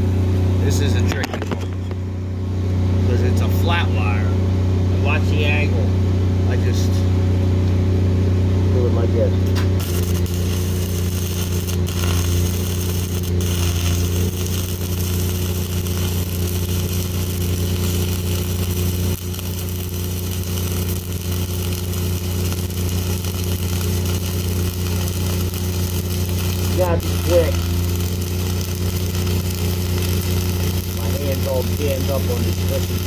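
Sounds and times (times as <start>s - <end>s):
welding arc crackling and hissing: 9.5s - 33.0s.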